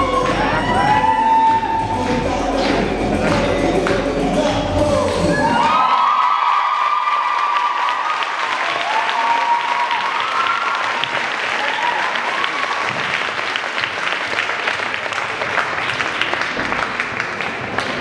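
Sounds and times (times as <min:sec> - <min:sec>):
high voices cheering: 0:00.0 - 0:02.4, 0:04.8 - 0:13.2
audience applauding: 0:05.1 - 0:18.0.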